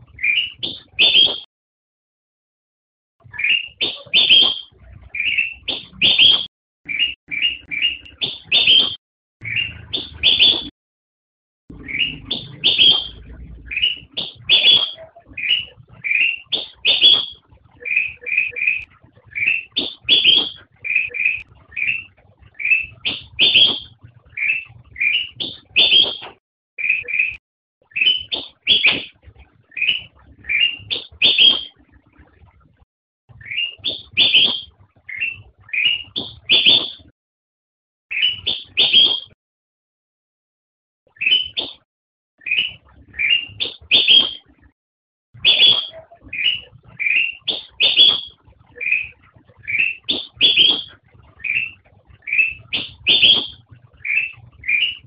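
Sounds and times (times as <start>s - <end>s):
bulbul singing whistled notes: 3.3s - 10.7s, 11.7s - 29.1s, 41.1s - 41.8s, 45.4s - 55.0s.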